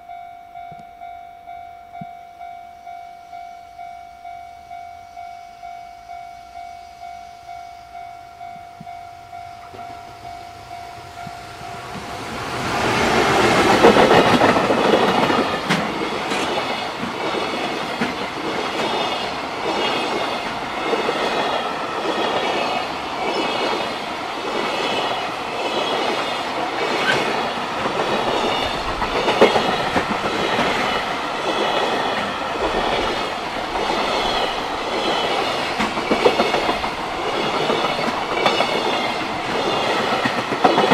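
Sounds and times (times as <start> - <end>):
level-crossing bell ringing: 0.0 - 12.4
freight train passing: 0.0 - 40.9
wagon wheels clacking over rail joints: 11.2 - 22.7, 24.5 - 40.9.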